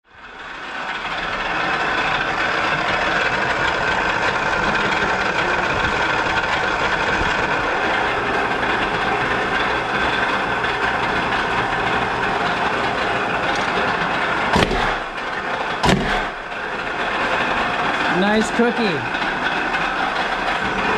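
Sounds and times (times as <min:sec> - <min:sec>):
press machine hum: 0:00.3 - 0:20.9
press head thump: 0:14.6 - 0:15.0, 0:15.8 - 0:16.3.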